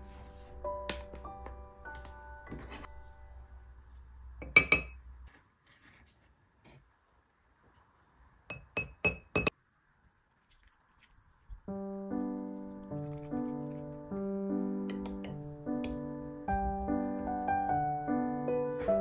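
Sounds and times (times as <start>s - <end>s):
soft piano music: 0.0s - 3.9s, 11.7s - 19.0s
ceramic mug clinking: 4.4s - 5.0s, 8.5s - 9.5s.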